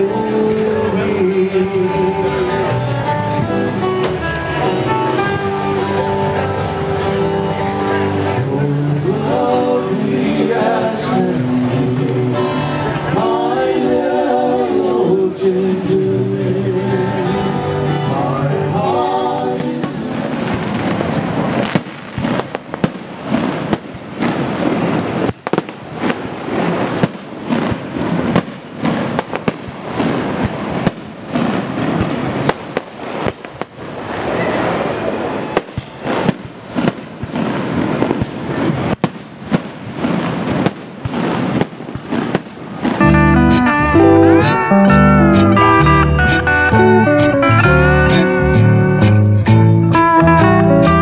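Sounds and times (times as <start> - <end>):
music: 0.0 - 20.3, 43.0 - 51.0
slide guitar music: 0.0 - 33.3, 42.7 - 51.0
continuous rumble: 0.0 - 43.4
fireworks bangs and crackles: 19.4 - 43.0.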